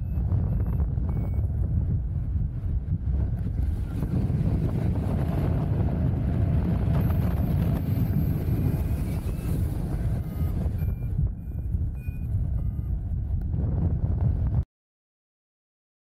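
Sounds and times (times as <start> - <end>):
short high beeps: 0.0 - 1.5, 7.0 - 12.9
wind rushing over microphone: 0.0 - 14.6.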